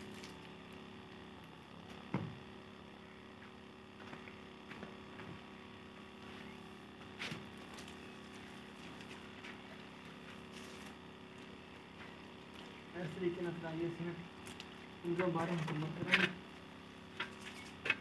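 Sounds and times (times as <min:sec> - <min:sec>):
small ticks: 0:14.4 - 0:16.4.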